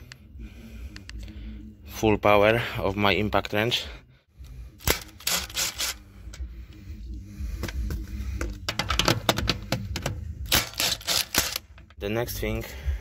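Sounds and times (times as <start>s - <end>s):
impact wrench hammering: 4.8s - 6.0s, 8.4s - 11.6s.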